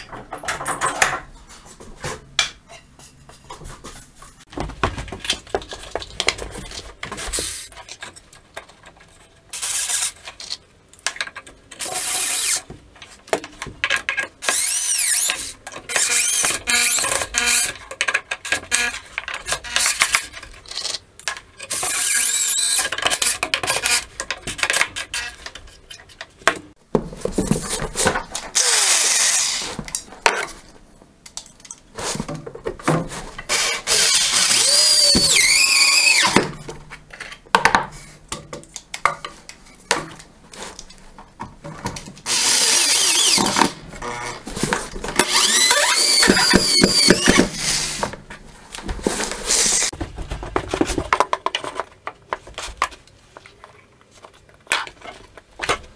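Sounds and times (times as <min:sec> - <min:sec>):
power drill whining: 0:28.6 - 0:29.7, 0:33.5 - 0:36.4, 0:42.3 - 0:44.4, 0:45.2 - 0:48.1, 0:49.5 - 0:49.9.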